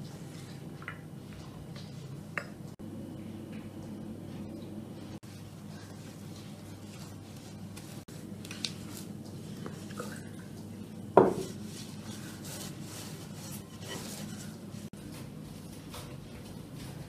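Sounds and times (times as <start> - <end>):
hands kneading dough: 3.7 - 17.0.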